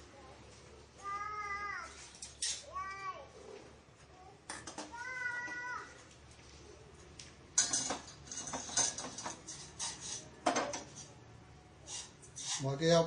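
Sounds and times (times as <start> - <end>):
metal pans clanking: 7.6 - 11.1.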